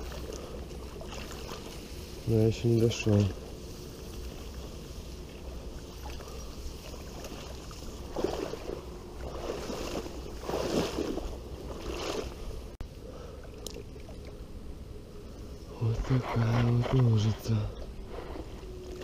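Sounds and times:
reeds rustling against clothing: 0.0 - 12.8.

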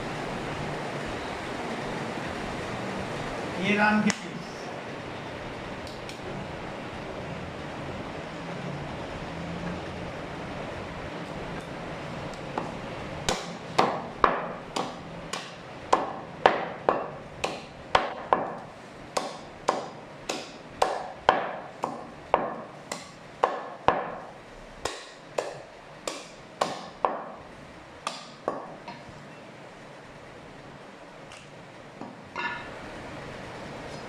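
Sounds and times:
cleaver chopping meat on wood: 12.6 - 24.2, 24.8 - 27.4, 28.0 - 28.8.

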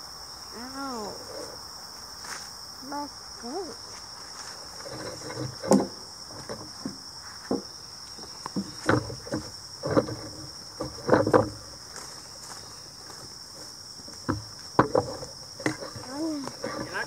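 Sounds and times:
high insect buzz: 0.0 - 17.0
wooden board knocking on log: 5.0 - 7.7, 8.5 - 11.6, 14.1 - 16.0.

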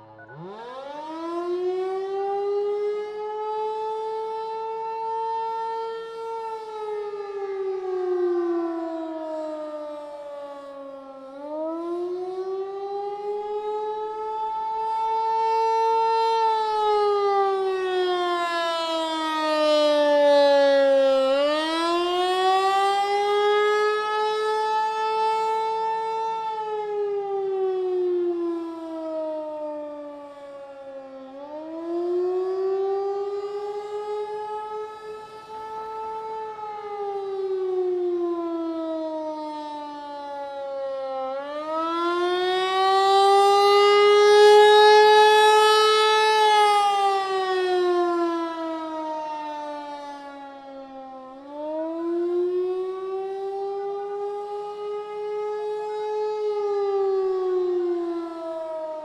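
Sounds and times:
rotating siren wailing: 0.0 - 59.0.

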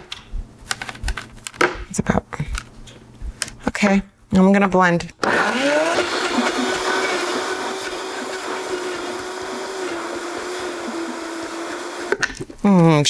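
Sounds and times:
blender motor whine: 5.2 - 12.2.

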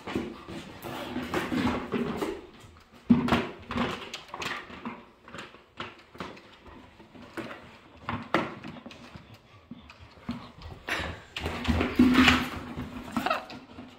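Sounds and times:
plastic bucket knocking on floor: 0.1 - 5.0.

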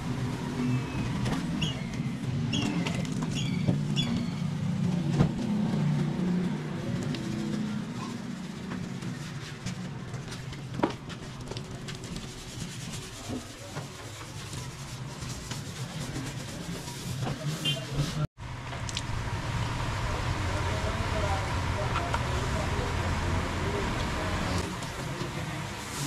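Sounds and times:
sandpaper scratching on metal: 12.0 - 18.2.

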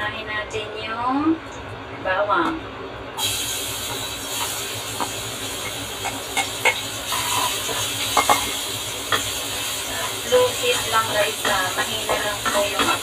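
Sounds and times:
vegetables sizzling in hot oil: 3.2 - 13.0.

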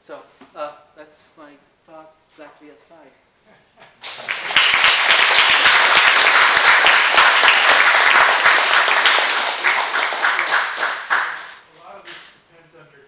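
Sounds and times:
audience applauding: 4.0 - 11.6.

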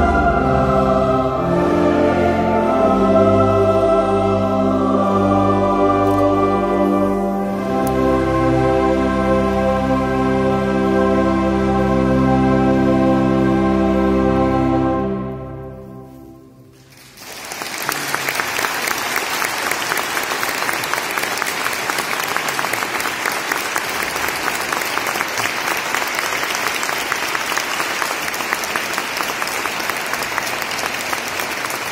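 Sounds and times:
choir singing: 0.0 - 16.0
audience clapping: 16.8 - 31.9.

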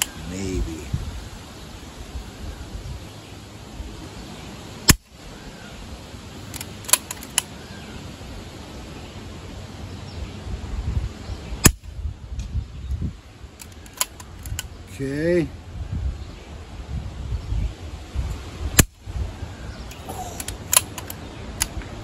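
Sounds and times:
light clicks: 19.9 - 21.9.

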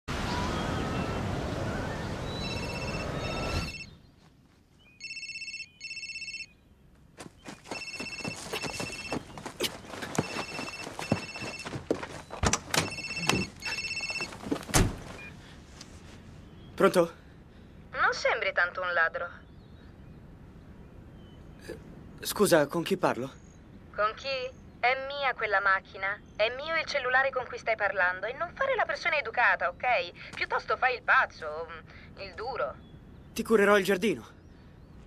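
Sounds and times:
mobile phone ringtone: 2.6 - 4.0, 5.0 - 6.6, 7.7 - 9.2, 10.2 - 11.7, 12.8 - 14.4
knocks and thumps: 14.2 - 15.2.

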